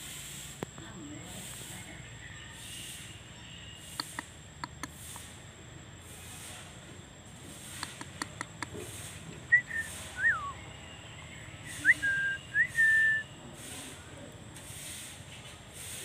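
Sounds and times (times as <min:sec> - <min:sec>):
light clicks: 0:07.7 - 0:08.8
person whistling: 0:09.5 - 0:10.6, 0:11.8 - 0:13.3.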